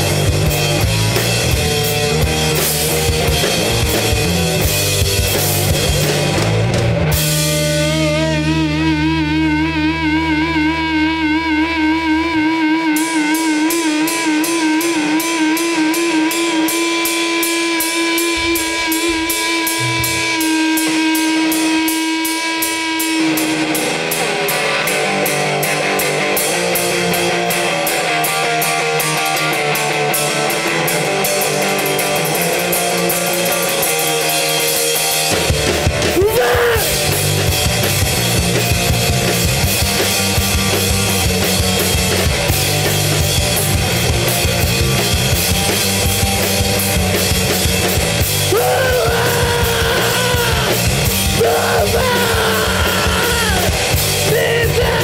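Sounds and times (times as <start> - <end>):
bass and drum kit: 0.0 - 55.0
electric guitar: 0.0 - 55.0
person singing: 36.2 - 37.0, 48.5 - 55.0.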